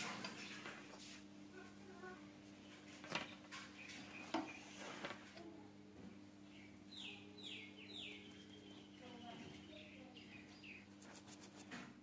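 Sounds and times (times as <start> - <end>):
low steady hum: 0.0 - 12.0
bird chirping: 3.2 - 4.8, 6.4 - 11.0.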